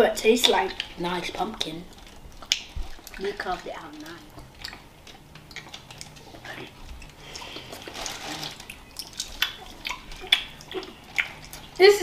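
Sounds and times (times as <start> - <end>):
chewing gummy candy: 0.2 - 12.0
sticky mouth clicks: 8.9 - 11.8.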